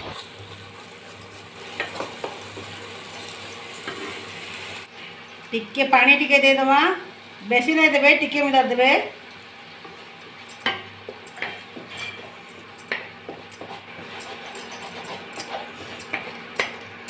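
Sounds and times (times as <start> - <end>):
spatula scraping paste in pan: 13.3 - 16.4.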